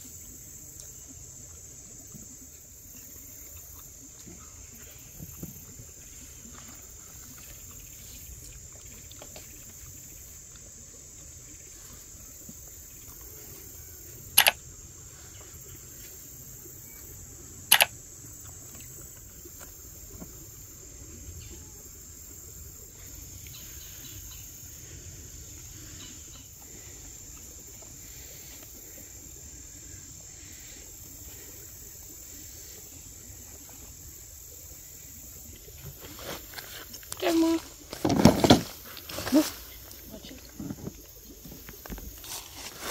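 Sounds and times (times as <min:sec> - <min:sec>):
insects chirring: 0:00.0 - 0:42.9
sharp clicks: 0:14.4 - 0:14.6, 0:17.7 - 0:17.9.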